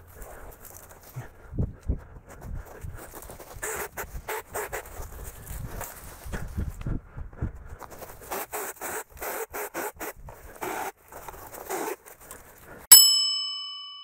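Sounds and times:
brush and twigs rustling: 0.0 - 9.2, 10.1 - 12.8
bell-like chime: 12.9 - 14.0.

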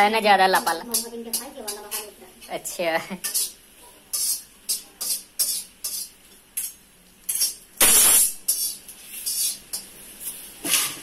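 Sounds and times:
metal spatula scraping a metal pan: 3.2 - 9.9, 10.6 - 11.0.

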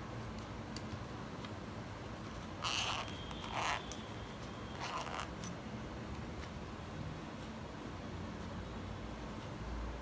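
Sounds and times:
zipper pulled open: 2.6 - 4.0, 4.7 - 5.5.

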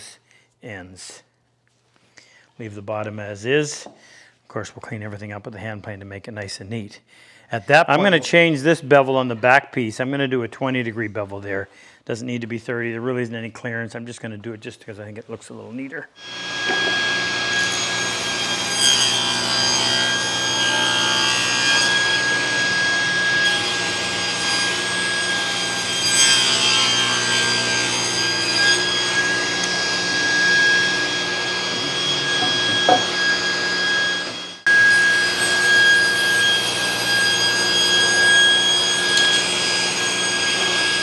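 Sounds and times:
table saw cutting wood: 16.2 - 41.0.

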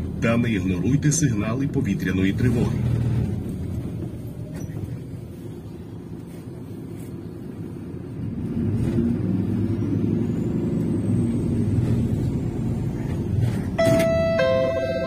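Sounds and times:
bus engine rumble: 0.0 - 15.0
electronic announcement chime: 13.8 - 15.0.

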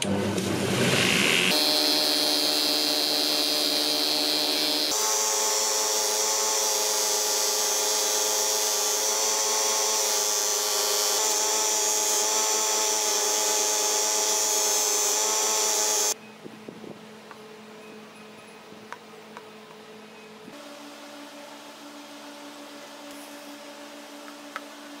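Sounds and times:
bench grinder buffing metal: 0.7 - 16.2.

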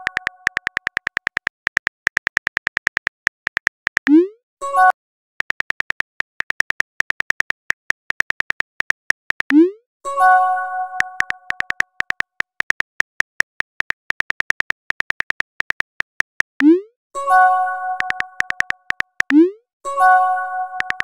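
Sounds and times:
phone keyboard clicking: 0.0 - 4.1, 5.4 - 9.6, 11.0 - 16.7, 18.0 - 19.4, 20.8 - 21.0.

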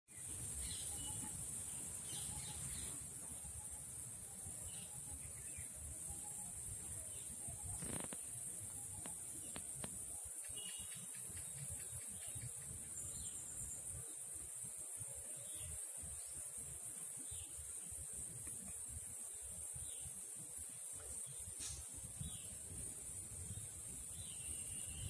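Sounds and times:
cicada buzzing: 7.6 - 8.3.

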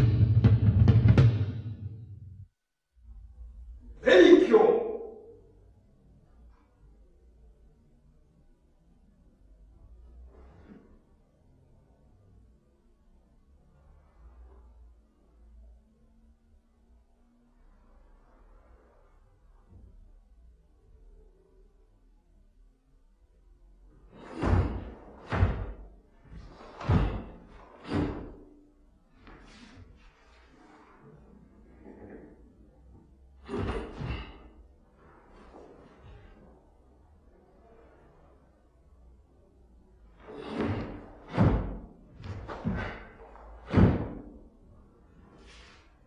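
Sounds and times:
bare feet stamping on wooden floor: 26.6 - 28.4, 40.4 - 44.4.

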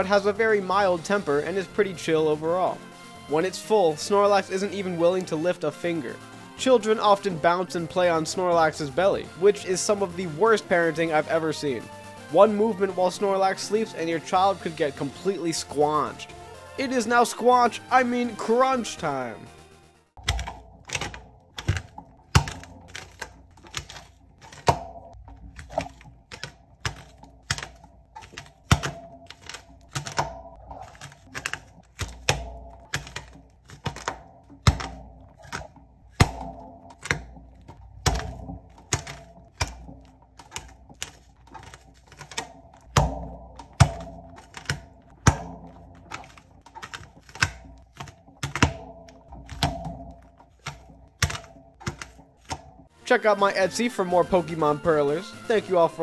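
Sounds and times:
beads popping off pegboard: 20.2 - 52.9.

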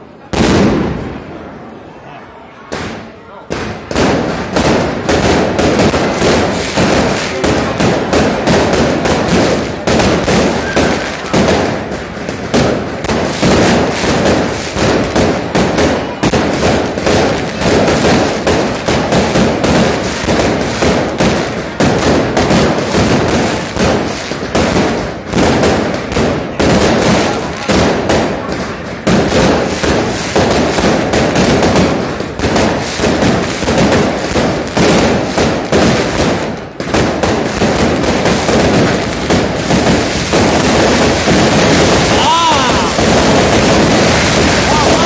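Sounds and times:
fireworks bursting: 0.0 - 1.9, 2.6 - 45.0.

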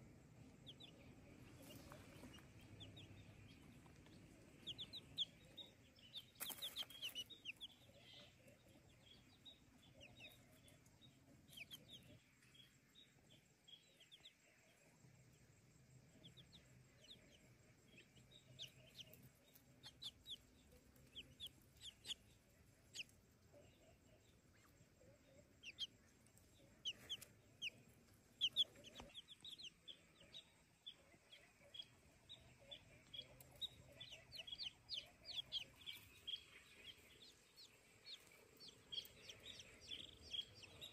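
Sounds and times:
chicks peeping: 0.0 - 14.4, 16.0 - 40.9.

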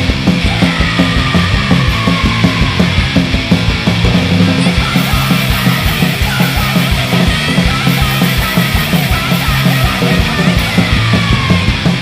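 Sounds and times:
distorted electric guitar: 0.0 - 12.0
fast driving drums: 0.0 - 12.0
hardcore punk song: 0.0 - 12.0.

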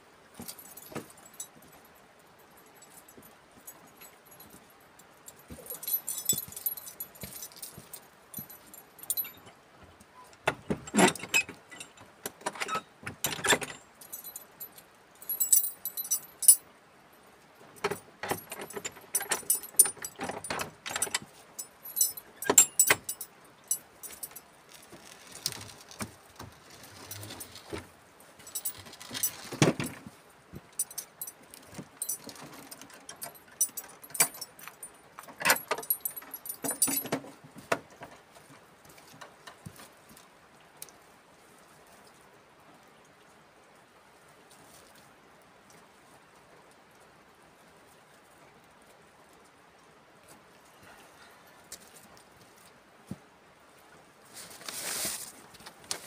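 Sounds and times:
iron door lock clinking and rattling: 8.4 - 9.6, 10.4 - 14.6, 17.8 - 24.4, 25.0 - 27.8, 28.4 - 30.0, 30.8 - 37.3.

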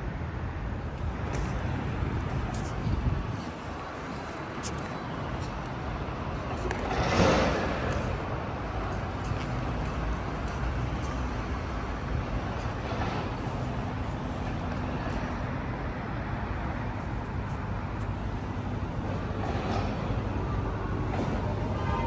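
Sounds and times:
indistinct distant voices: 19.0 - 22.0.

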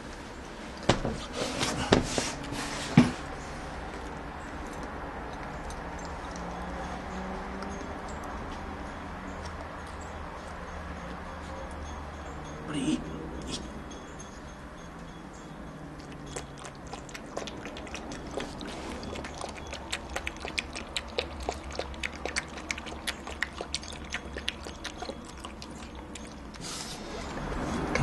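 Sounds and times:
puppy lapping water: 16.0 - 28.0.

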